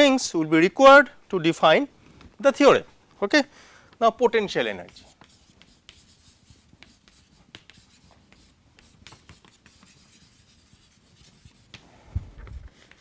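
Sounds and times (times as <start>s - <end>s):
chalk tapping and scratching on chalkboard: 4.6s - 11.9s, 12.5s - 13.0s.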